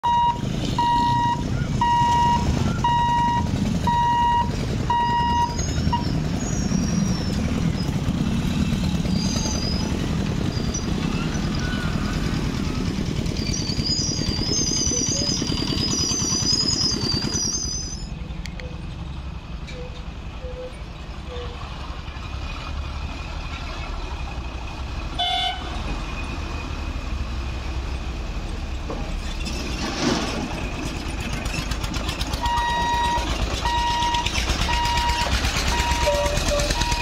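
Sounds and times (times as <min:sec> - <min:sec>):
electronic beeper: 0:00.0 - 0:06.2
motorcycle engines rumbling: 0:00.0 - 0:37.0.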